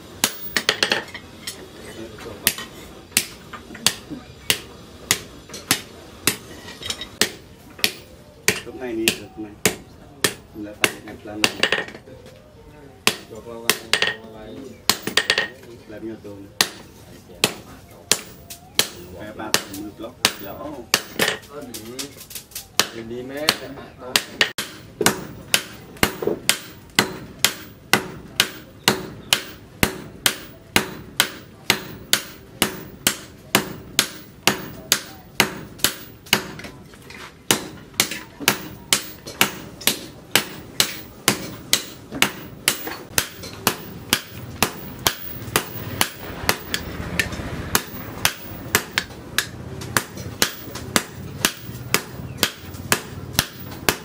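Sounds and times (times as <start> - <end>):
hammers striking hot steel on anvil: 0.2 - 1.6, 2.4 - 12.0, 13.0 - 14.3, 14.9 - 15.6, 16.6 - 36.7, 37.5 - 54.0.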